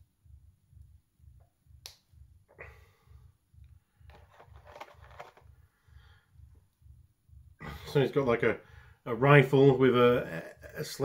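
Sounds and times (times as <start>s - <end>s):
plastic parts clicking: 4.1s - 5.4s.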